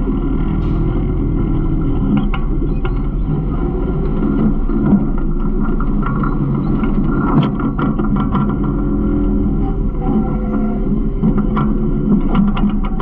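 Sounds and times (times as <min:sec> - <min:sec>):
garbage truck low rumble: 0:00.0 - 0:13.0.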